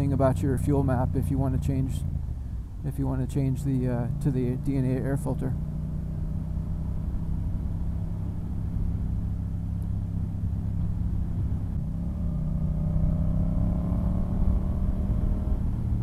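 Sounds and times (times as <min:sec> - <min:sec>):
motorcycle engine running: 0:03.4 - 0:16.0.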